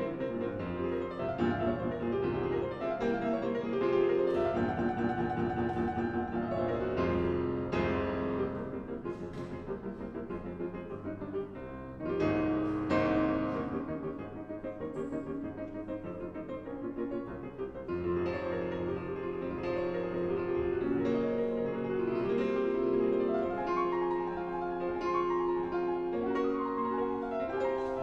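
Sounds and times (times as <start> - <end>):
solo classical piano: 0.0 - 28.0.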